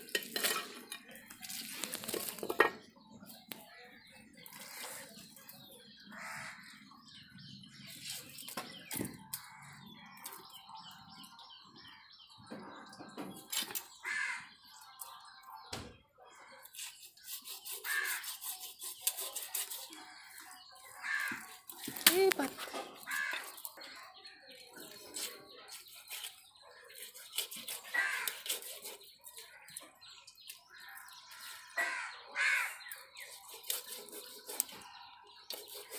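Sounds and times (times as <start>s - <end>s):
crows cawing: 6.1s - 6.8s, 14.0s - 14.6s, 17.8s - 18.3s, 21.0s - 22.0s, 23.0s - 23.6s, 27.9s - 28.5s, 30.9s - 32.9s
knife scraping fish scales: 16.6s - 23.8s, 24.6s - 29.9s, 32.9s - 34.8s, 35.4s - 35.9s.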